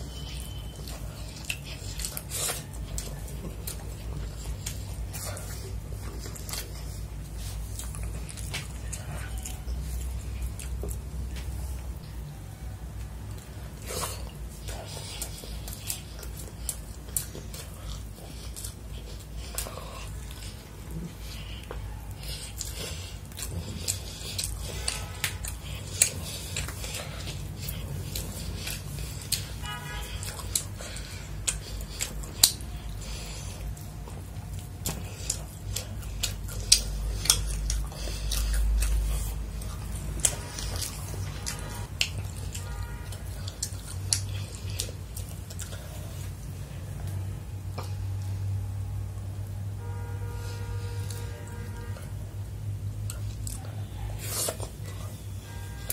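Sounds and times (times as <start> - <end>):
chewing with wet mouth clicks: 0.0 - 48.6, 52.9 - 55.9
low steady hum: 0.0 - 55.9.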